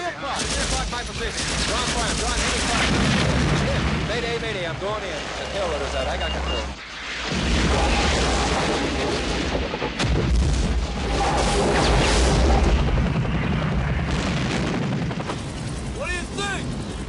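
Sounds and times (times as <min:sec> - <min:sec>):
gunfire: 0:00.3 - 0:04.1
explosions: 0:00.3 - 0:16.0
deep continuous rumble: 0:00.3 - 0:17.0.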